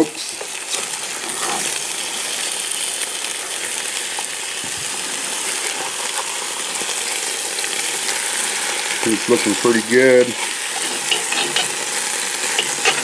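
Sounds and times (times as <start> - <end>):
meat sizzling in a pan: 0.0 - 13.0
metal spatula scraping and clicking: 10.4 - 11.8, 12.4 - 13.0.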